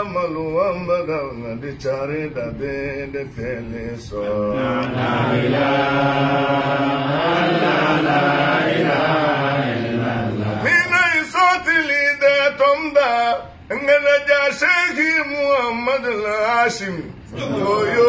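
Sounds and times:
solo man singing: 0.0s - 4.8s
men chanting in unison: 3.0s - 13.5s, 14.1s - 18.0s.

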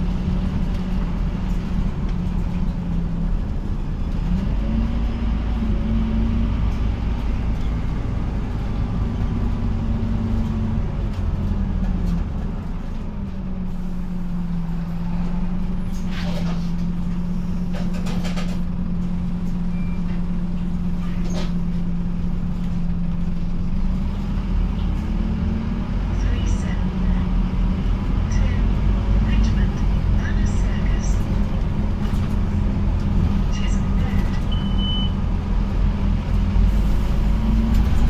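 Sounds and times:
bus diesel engine: 0.0s - 38.0s.

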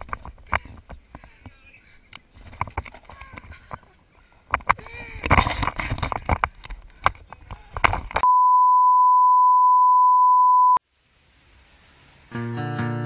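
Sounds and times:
test tone beep: 8.2s - 10.8s
strummed guitar music: 12.3s - 13.0s.

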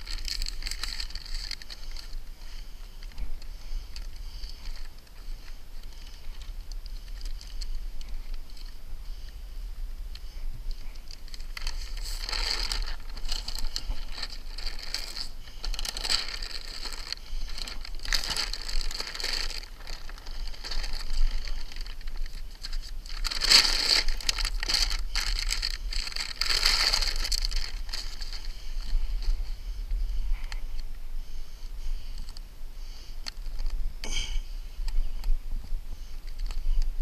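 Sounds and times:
paper liner crinkling and rustling: 0.0s - 8.8s, 10.3s - 29.5s.

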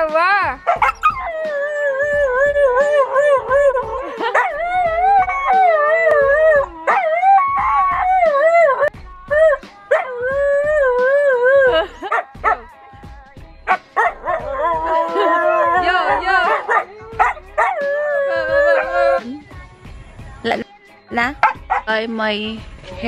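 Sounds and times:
dogs howling: 0.7s - 12.7s, 13.7s - 19.3s, 21.4s - 21.9s.

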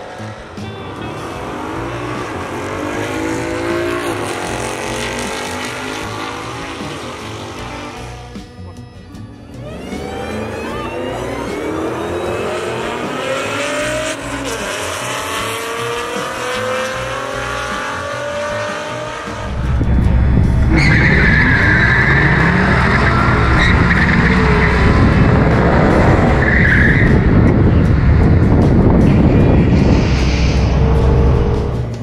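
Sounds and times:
drag car engine accelerating: 0.0s - 8.4s, 9.3s - 32.0s
tires squealing: 9.6s - 32.0s
loud close engine rumble: 15.8s - 32.0s.

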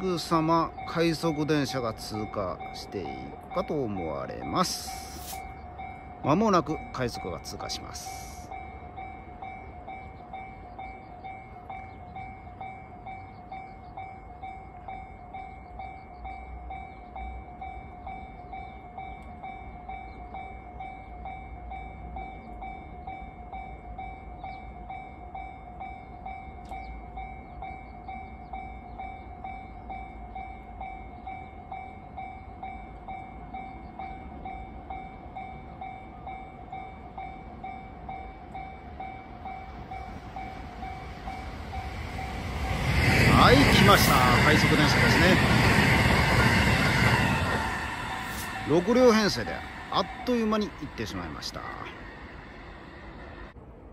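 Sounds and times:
level crossing warning bell: 0.0s - 53.6s
train arriving: 0.0s - 53.9s.

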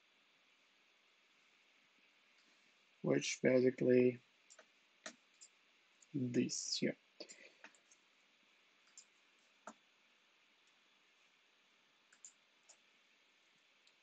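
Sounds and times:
mouse and keyboard clicks: 12.1s - 12.8s.

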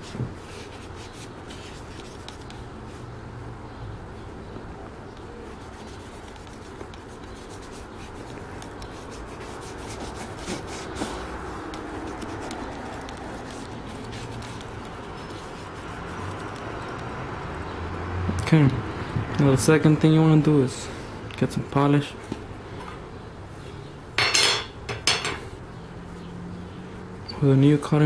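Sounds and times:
cotton ball rubbing leather: 5.4s - 16.9s.

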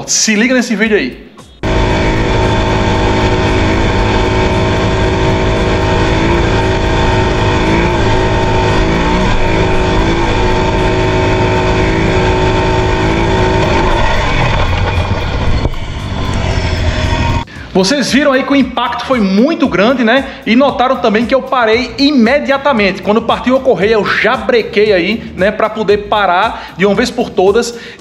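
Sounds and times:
atv engine running: 1.5s - 17.5s.

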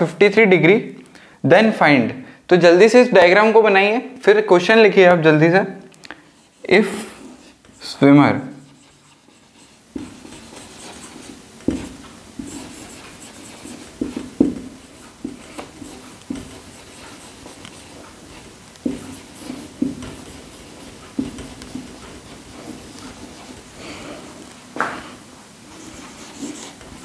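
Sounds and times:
pen writing on a board: 8.6s - 23.7s, 25.7s - 27.0s.

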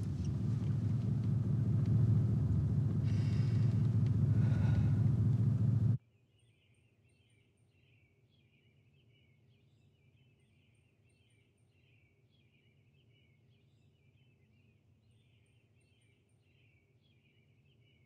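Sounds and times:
low rumble inside car: 0.0s - 6.0s
faint chirping: 0.0s - 9.4s.

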